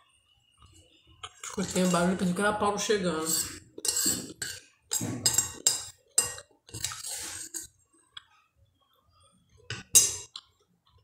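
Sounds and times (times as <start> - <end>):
metal spoon scraping glass plate: 1.2 - 2.4, 3.2 - 7.8.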